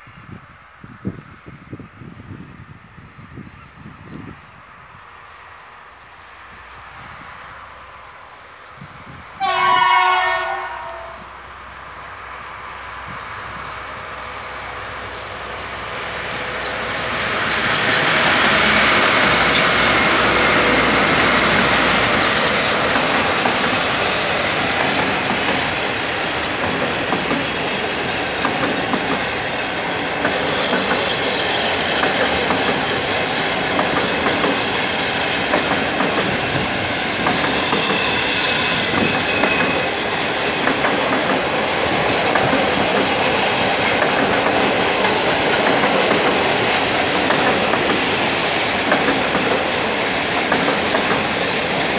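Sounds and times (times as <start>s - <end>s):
diesel locomotive passing: 0.0s - 51.9s
freight train rumbling: 0.0s - 51.9s
wheels clacking over rail joints: 16.4s - 51.9s.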